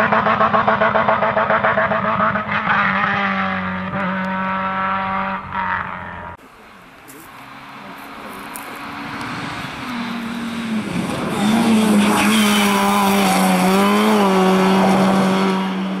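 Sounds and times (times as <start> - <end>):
rally car engine at high revs: 0.0 - 6.4, 7.5 - 16.0.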